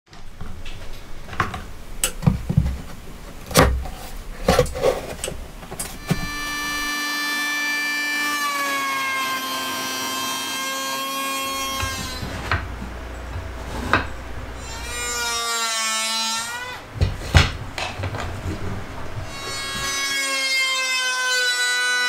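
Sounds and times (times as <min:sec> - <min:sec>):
tools and wood knocking: 0:00.6 - 0:07.0, 0:11.5 - 0:14.2
electric planer whining: 0:06.0 - 0:12.6.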